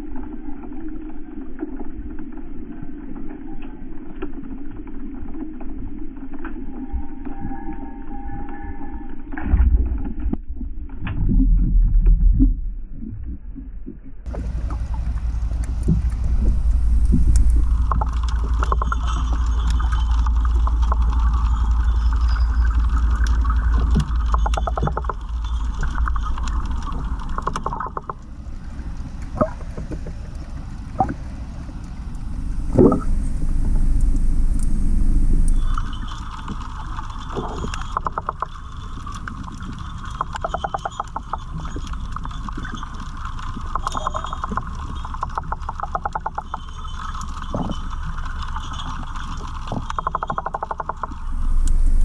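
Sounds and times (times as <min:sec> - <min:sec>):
underwater water rumble: 0:00.0 - 0:52.0
steady buzzing hum: 0:14.3 - 0:37.2, 0:49.8 - 0:52.0.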